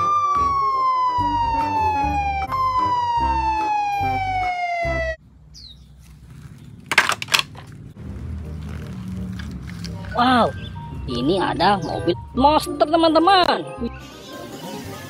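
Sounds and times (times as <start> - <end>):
police siren wailing: 0.0 - 5.2
plastic toys clattering: 6.4 - 7.9.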